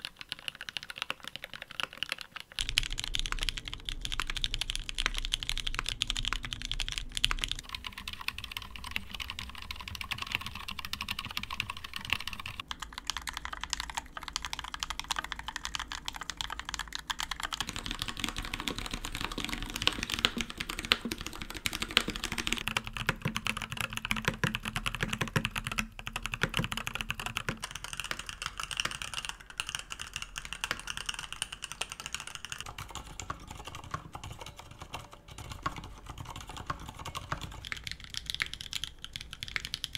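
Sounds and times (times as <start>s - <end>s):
typing on mechanical keyboards: 0.0s - 39.9s.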